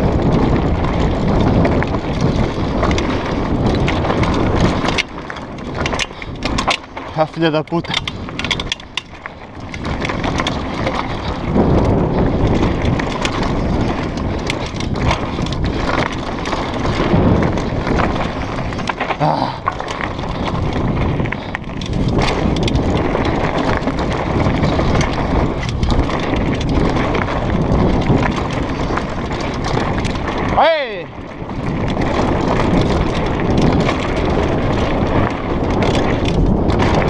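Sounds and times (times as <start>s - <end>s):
bike rattling and clicking: 0.0s - 37.0s
tyres rumbling over dirt: 0.0s - 37.0s
wind buffeting microphone: 0.0s - 37.0s.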